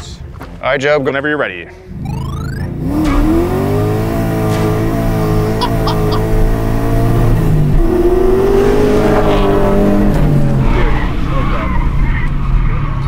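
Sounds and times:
car engine accelerating hard: 2.0s - 13.0s.

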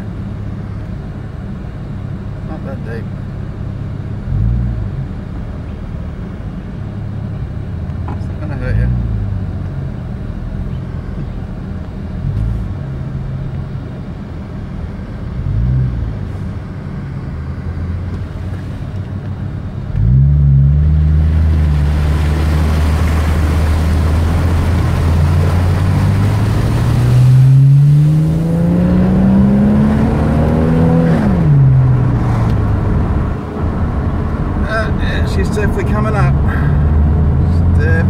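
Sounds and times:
car engine running: 0.0s - 38.0s
water spraying against tyres: 21.0s - 28.4s.

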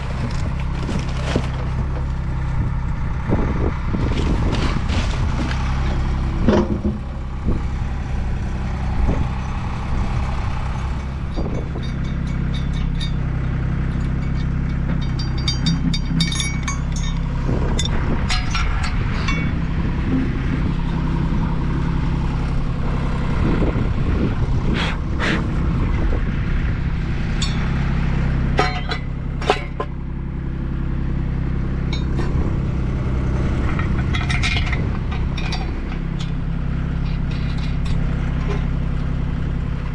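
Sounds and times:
steady low rumble: 0.0s - 39.9s
metal brackets and bolts clinking: 10.9s - 19.6s, 27.4s - 27.7s, 28.6s - 30.0s, 31.9s - 32.4s, 33.6s - 39.1s.

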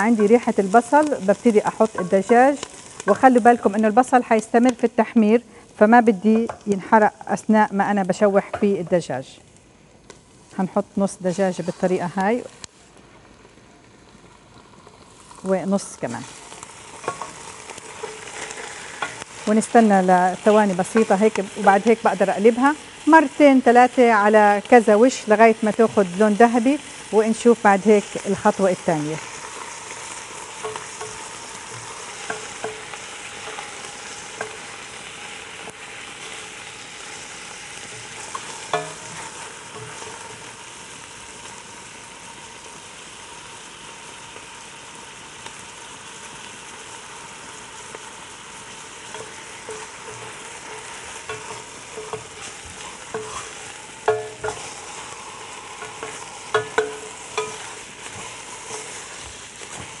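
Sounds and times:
chicken and onion sizzling in oil: 0.0s - 9.4s, 10.2s - 60.0s
wooden spoon scraping a pot: 17.0s - 19.2s, 49.1s - 60.0s.

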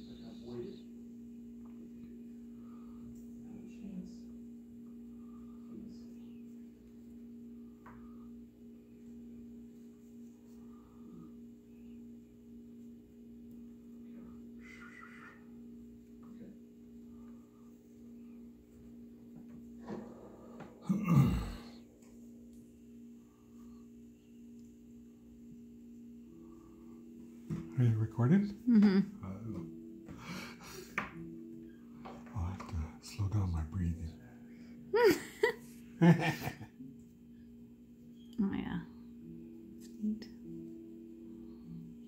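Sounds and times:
low electrical hum: 0.0s - 42.0s
person sighing heavily: 20.8s - 21.8s.

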